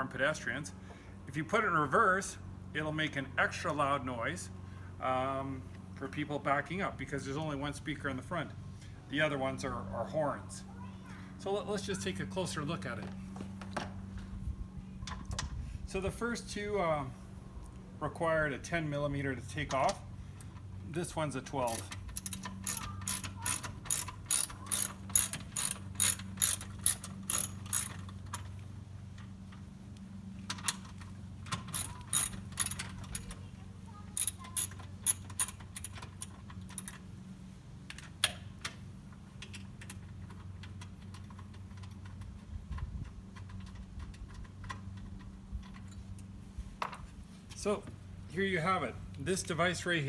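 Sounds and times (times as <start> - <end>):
ratchet wrench clicking: 21.7 - 28.0, 31.5 - 33.4, 34.2 - 37.0.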